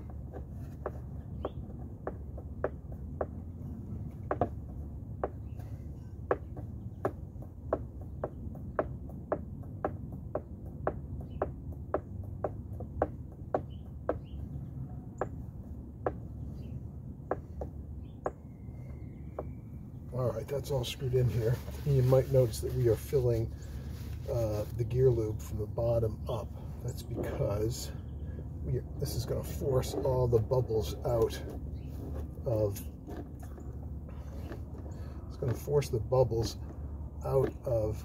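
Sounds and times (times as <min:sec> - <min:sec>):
cloth rubbing on microphone: 0:20.9 - 0:24.8.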